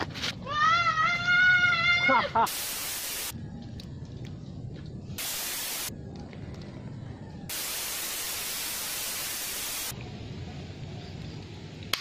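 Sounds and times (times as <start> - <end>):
video static hiss: 2.5 - 3.3, 5.2 - 5.9, 7.5 - 9.9.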